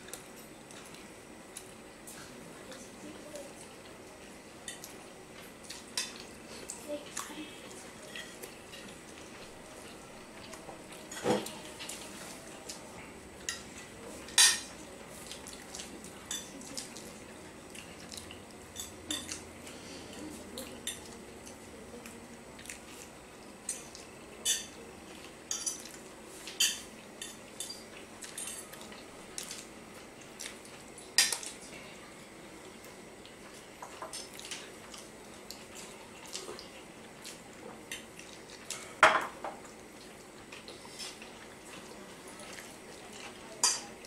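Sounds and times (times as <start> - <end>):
forks clinking on ceramic plates: 14.3 - 14.7, 23.7 - 24.8, 25.5 - 26.0, 26.6 - 28.8, 43.6 - 43.9.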